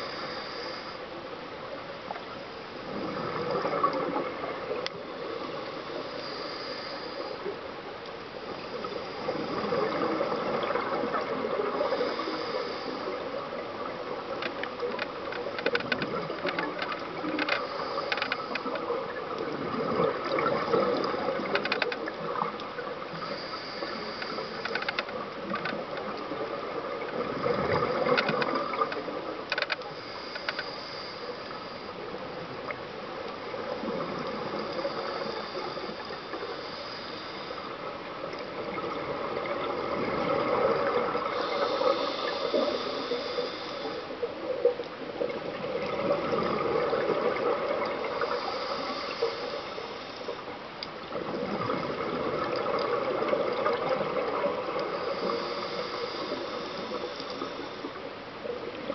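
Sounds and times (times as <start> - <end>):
underwater exhaled bubbles: 2.8 - 7.5, 8.7 - 58.9
small clicks: 14.3 - 26.4, 27.0 - 31.8, 47.8 - 58.0.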